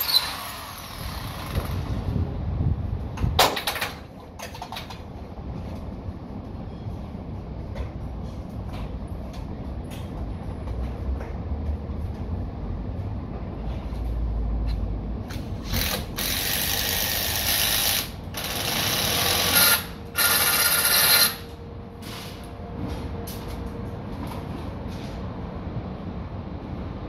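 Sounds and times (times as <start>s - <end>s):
handheld power drill: 0.0s - 1.8s, 15.6s - 21.5s.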